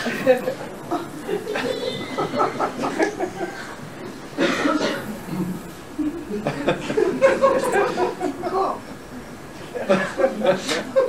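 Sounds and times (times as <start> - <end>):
people laughing: 0.0 - 4.1, 5.0 - 11.0
harsh cough: 4.4 - 5.5
people talking: 4.4 - 11.0.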